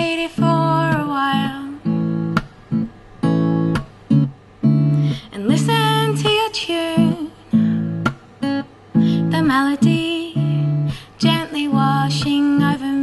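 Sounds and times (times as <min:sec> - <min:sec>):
woman singing: 0:00.0 - 0:02.0, 0:05.2 - 0:07.7, 0:09.0 - 0:13.0
strummed acoustic guitar: 0:00.0 - 0:13.0.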